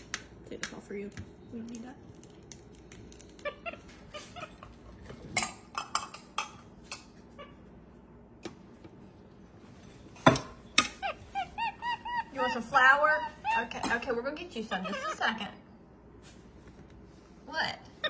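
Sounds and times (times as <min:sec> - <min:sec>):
monkey squeaks and chirps: 0:10.9 - 0:12.6.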